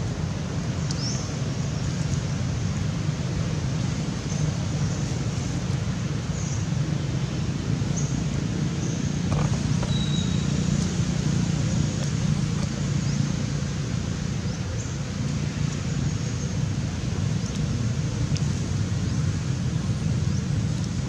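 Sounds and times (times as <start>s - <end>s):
low outdoor rumble: 0.0s - 21.0s
faint high chirps: 9.8s - 10.5s.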